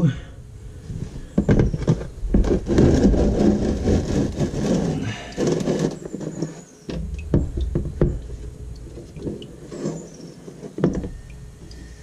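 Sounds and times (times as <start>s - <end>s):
plastic pan scraping and clunking: 1.0s - 11.2s
sharp knocks: 6.9s - 8.4s.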